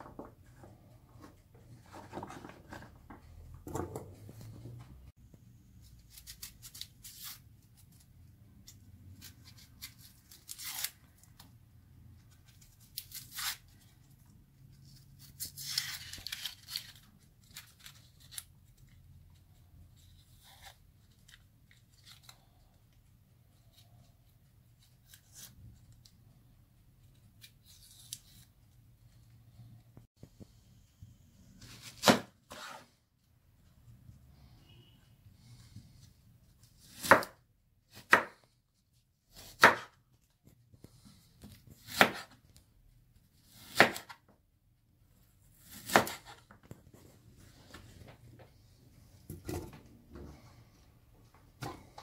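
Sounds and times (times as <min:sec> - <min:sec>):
knife scraping onion skin: 0:05.9 - 0:08.0, 0:09.2 - 0:11.4, 0:12.5 - 0:13.8, 0:36.6 - 0:38.4, 0:41.1 - 0:42.4, 0:43.4 - 0:44.2, 0:45.5 - 0:46.4.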